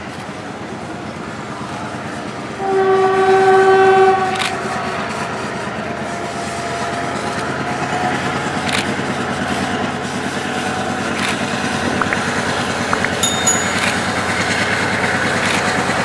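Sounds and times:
multi-tone train horn: 2.5 - 4.4.

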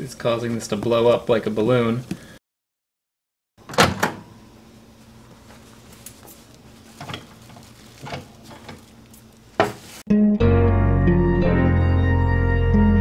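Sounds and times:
microwave door click: 3.7 - 4.3.

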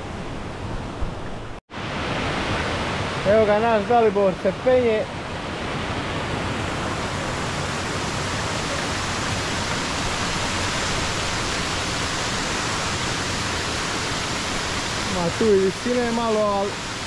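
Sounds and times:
river water rushing: 0.0 - 17.0.

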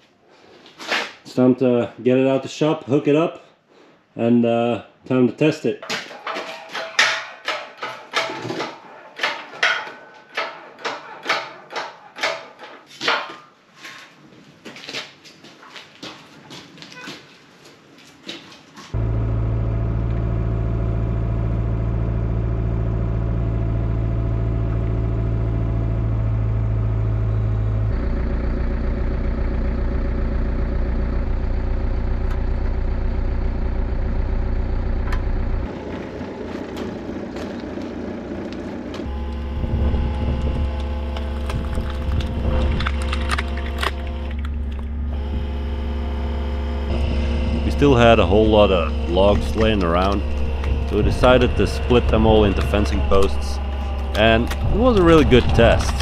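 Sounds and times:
excavator engine running: 18.9 - 56.0
wood cracking and splintering: 35.8 - 45.5, 49.0 - 56.0.

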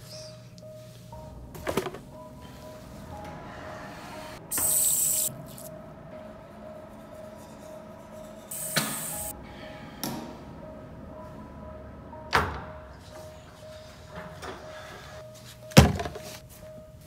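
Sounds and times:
background music of held notes: 0.0 - 17.0
tap water hissing: 4.5 - 5.6, 8.5 - 9.3.

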